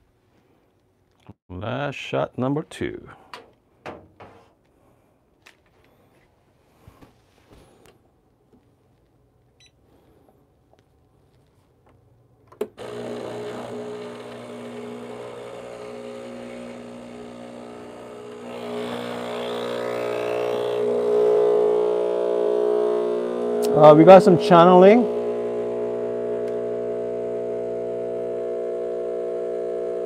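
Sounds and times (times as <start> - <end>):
espresso machine pump humming: 12.8 - 30.0.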